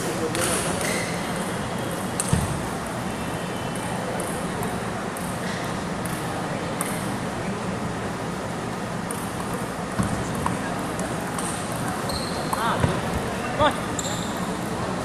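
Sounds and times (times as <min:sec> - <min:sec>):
steady background noise: 0:00.0 - 0:15.0
table tennis balls bouncing: 0:03.8 - 0:05.4, 0:06.0 - 0:07.1, 0:09.0 - 0:13.4.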